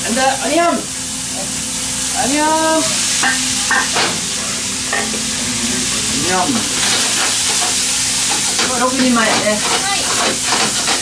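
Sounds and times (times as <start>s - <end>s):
food sizzling in frying pan: 0.0s - 11.0s
utensil scraping pan: 5.8s - 11.0s.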